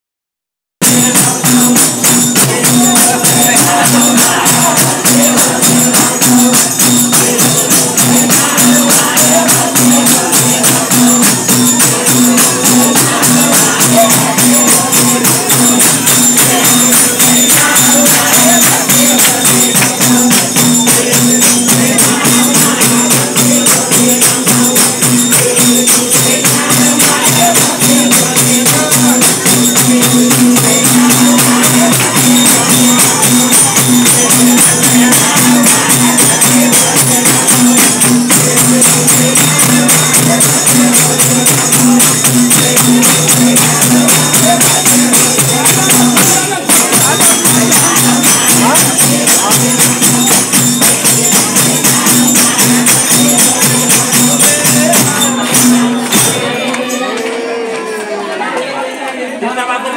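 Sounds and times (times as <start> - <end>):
group singing devotional song: 0.8 - 59.9
jingling percussion: 0.8 - 59.9.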